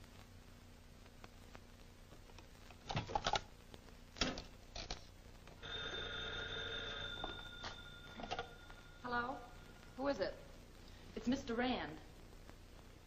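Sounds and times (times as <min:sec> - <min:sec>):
telephone bell ringing: 0:05.6 - 0:10.1.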